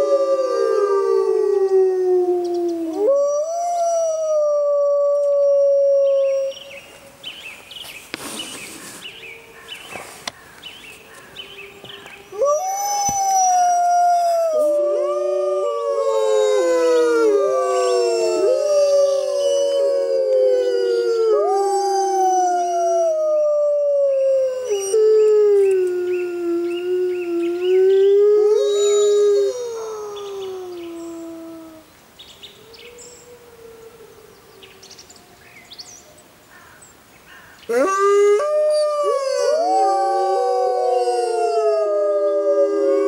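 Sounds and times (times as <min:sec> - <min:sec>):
wolves howling in chorus: 0:00.0 - 0:06.6, 0:12.1 - 0:31.8, 0:37.7 - 0:43.0.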